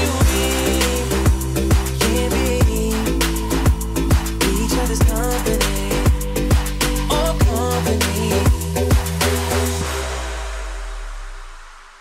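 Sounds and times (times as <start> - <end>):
beat-driven music: 0.0 - 11.3
deep bass line: 0.0 - 12.0
kick drum: 1.3 - 2.0, 2.6 - 2.9, 3.7 - 4.4, 5.0 - 5.2, 7.4 - 7.7, 8.5 - 9.2.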